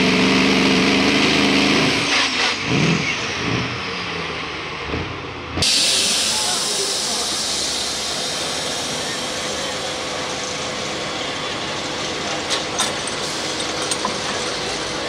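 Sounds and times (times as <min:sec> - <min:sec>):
diesel truck idling: 0:05.6 - 0:15.0.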